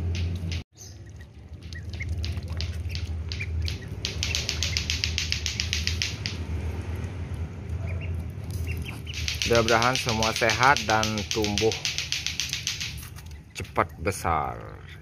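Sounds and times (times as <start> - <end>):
duckling peeps: 1.0 - 6.3, 7.8 - 10.3
duck bills clicking: 1.5 - 6.5, 8.0 - 14.0.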